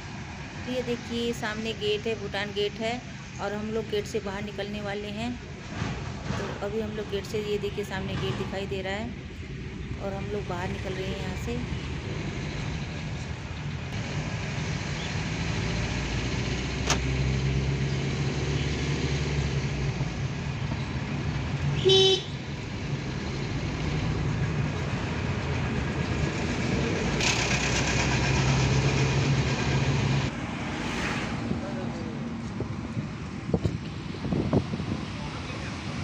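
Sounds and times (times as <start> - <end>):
car engine and road noise: 0.0 - 36.0
car horn toot: 21.8 - 22.4.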